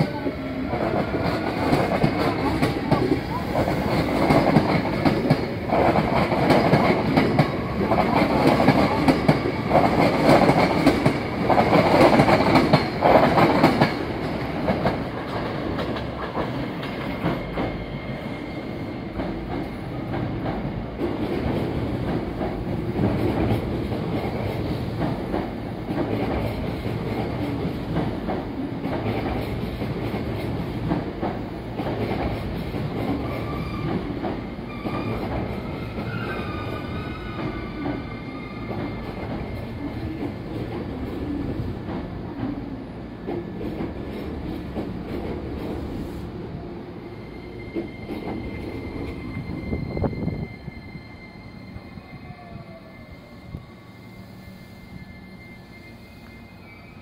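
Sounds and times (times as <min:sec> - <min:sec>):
train rumble: 0:00.0 - 0:56.4
high train whine: 0:00.0 - 0:57.0
train wheels clacking on rail joints: 0:00.7 - 0:17.8, 0:19.1 - 0:46.0.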